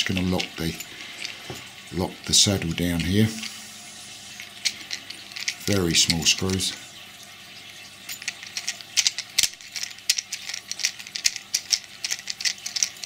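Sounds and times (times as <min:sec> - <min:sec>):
light metallic clicks and clinks: 0:08.1 - 0:13.0.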